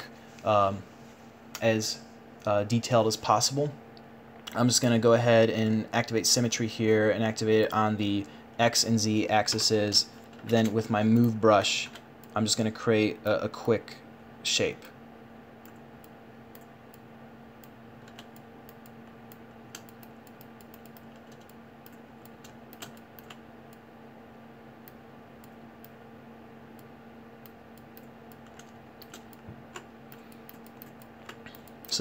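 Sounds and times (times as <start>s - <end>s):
steady electrical hum: 0.0s - 32.0s
keyboard and mouse clicking: 17.6s - 23.8s, 27.4s - 32.0s.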